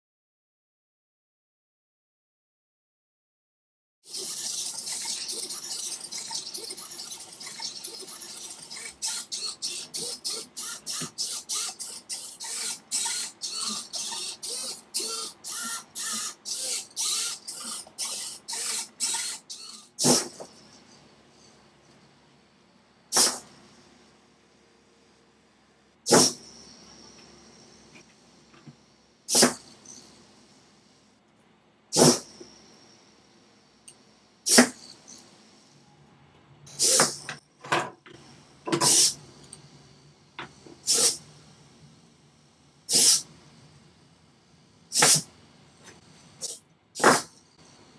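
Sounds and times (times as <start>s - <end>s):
servo motors whirring: 4.1s - 20.5s, 36.7s - 37.3s.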